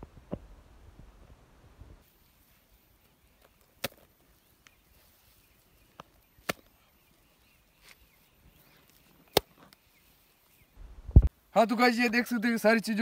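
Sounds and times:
hands patting soil: 2.0 - 11.3
sharp slaps: 6.4 - 6.7, 9.3 - 9.5.

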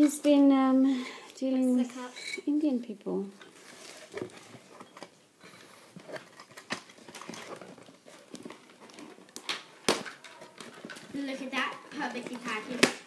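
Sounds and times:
packaging rustling: 3.4 - 13.0.

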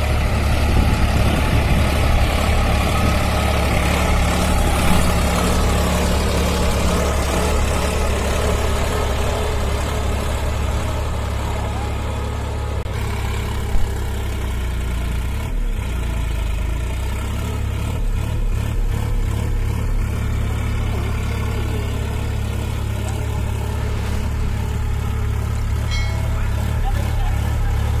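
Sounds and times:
tractor diesel engine running: 0.0 - 28.0.

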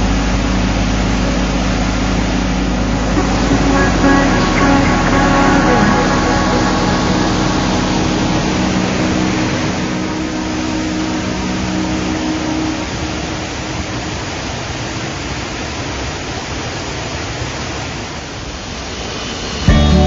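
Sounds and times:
background music sustained notes: 0.0 - 15.0
waterfall and stream rushing: 0.0 - 19.8.

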